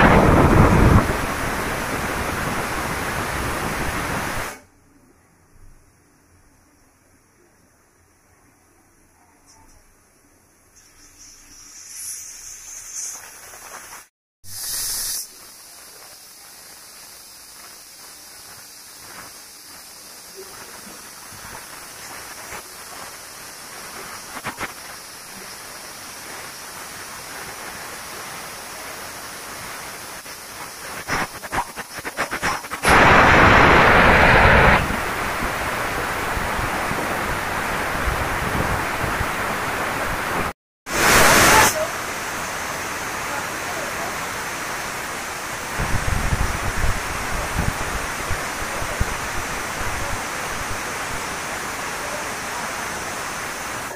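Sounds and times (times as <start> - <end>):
steam hissing: 0.0 - 4.6, 10.8 - 53.9
crackling spits: 10.8 - 16.2, 30.2 - 36.8.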